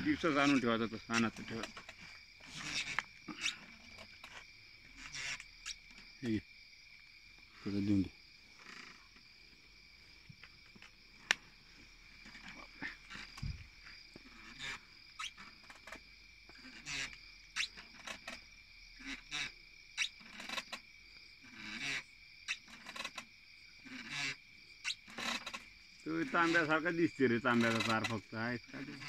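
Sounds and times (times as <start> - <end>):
clicks and rustles of movement: 0.0 - 6.1
night insects chorus: 0.0 - 29.0.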